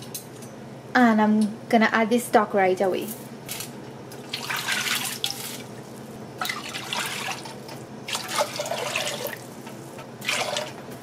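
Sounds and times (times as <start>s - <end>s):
liquid pouring and splashing into pot: 6.4s - 9.5s, 10.2s - 10.8s.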